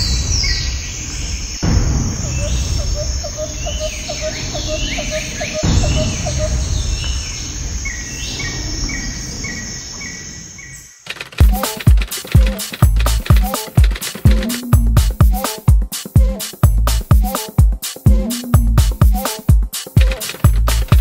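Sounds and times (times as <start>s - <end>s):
birds chirping and calling: 0.0s - 14.8s
rapid short ticks: 11.0s - 15.1s, 19.9s - 21.0s
short repeating call: 11.1s - 15.6s
low rumble: 14.8s - 15.2s.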